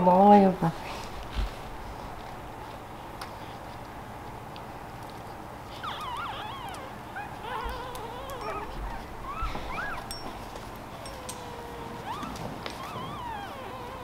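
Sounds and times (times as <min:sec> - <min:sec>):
puppies squealing and whimpering: 0:05.7 - 0:14.0.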